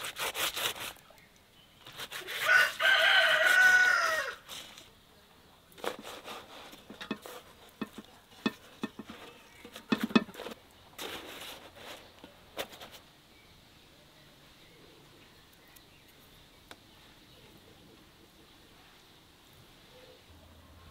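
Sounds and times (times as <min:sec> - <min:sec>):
clicks and knocks of food handling: 0:06.8 - 0:10.6.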